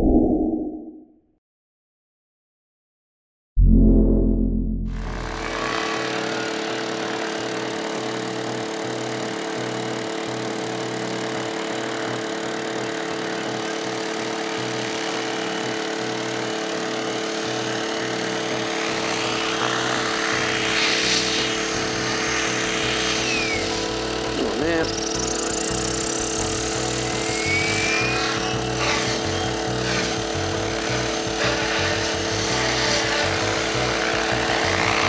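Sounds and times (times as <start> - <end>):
rotor blades whooshing: 4.3 - 6.2
rc helicopter motor whine: 4.9 - 35.0.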